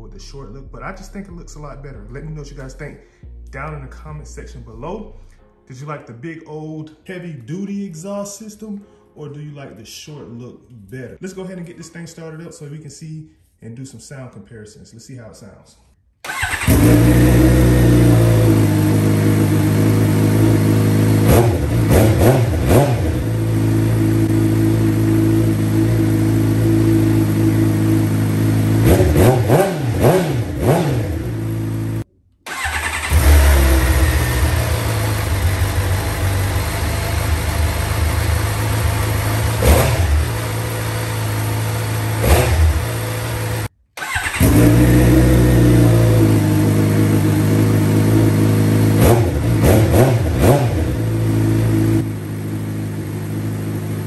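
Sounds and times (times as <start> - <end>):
motorcycle engine idling and revving: 16.3 - 54.0.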